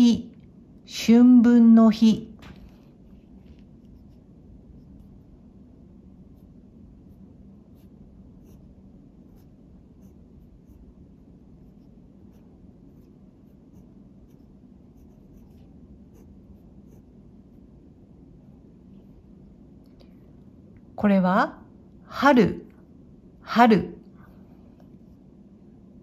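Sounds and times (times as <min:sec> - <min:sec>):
steady low hum: 0:00.0 - 0:26.0
pen scratching on paper: 0:03.0 - 0:05.4, 0:06.2 - 0:17.7.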